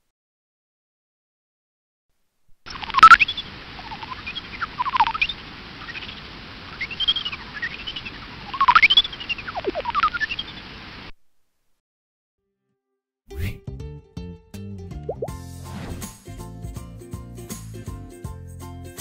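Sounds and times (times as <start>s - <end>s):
bat chirps sweeping in pitch: 2.7s - 10.7s.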